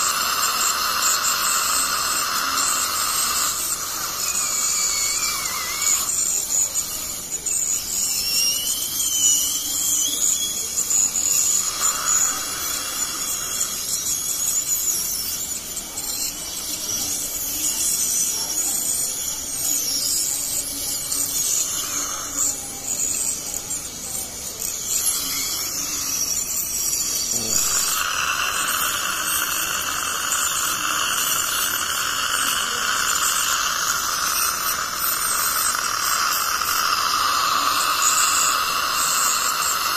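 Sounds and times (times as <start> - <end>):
water spray hissing: 0.0 - 6.2, 26.6 - 39.9
dental scaler high-pitched whine: 0.0 - 39.9.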